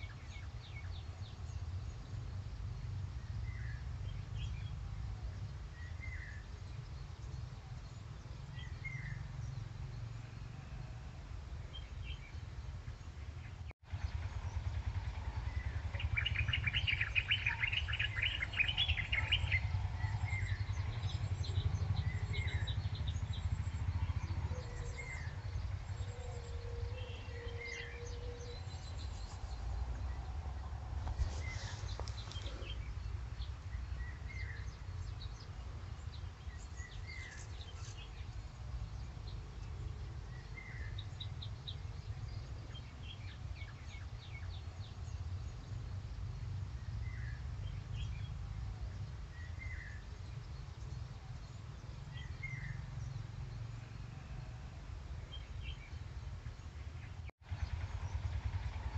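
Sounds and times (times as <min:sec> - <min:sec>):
birds chirping: 0:00.0 - 0:58.9
low rumble: 0:08.9 - 0:43.9.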